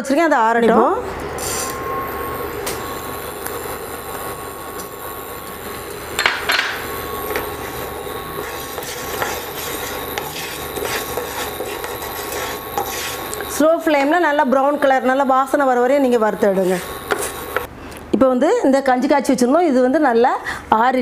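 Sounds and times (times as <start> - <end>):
wooden spatula scraping pan: 7.4 - 14.1, 16.4 - 17.7.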